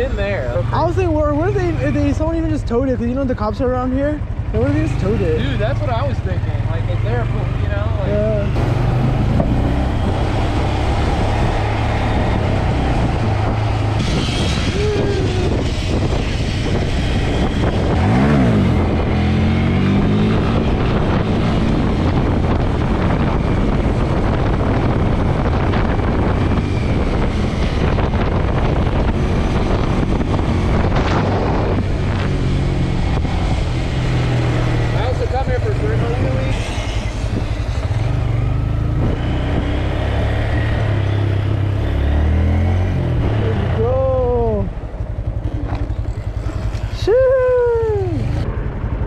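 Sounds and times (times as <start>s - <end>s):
wind on the microphone: 8.0s - 41.7s
small motorcycle engine running: 43.4s - 49.0s.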